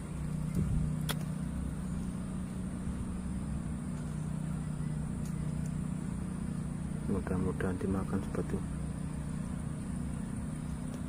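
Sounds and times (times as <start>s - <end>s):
low mechanical hum: 0.0s - 11.0s
sharp click: 0.5s - 1.3s.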